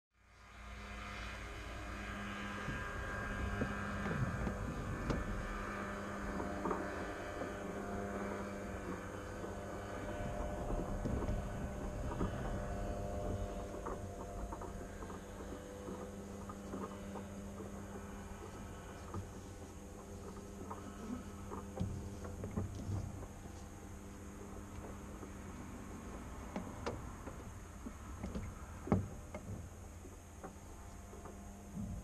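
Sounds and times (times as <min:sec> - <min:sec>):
low rumble and hum: 0:00.2 - 0:32.0
airframe knocks and rattles: 0:08.5 - 0:18.2.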